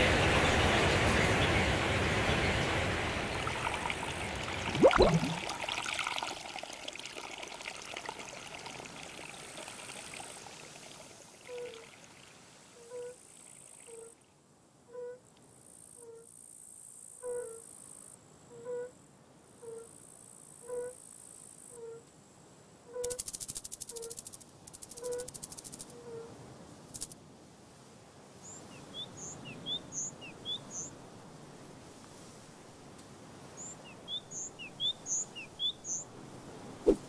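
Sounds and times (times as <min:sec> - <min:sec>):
water pouring and trickling: 0:02.9 - 0:12.7
water plop: 0:03.4 - 0:10.3
soft pitched blips: 0:04.7 - 0:05.5.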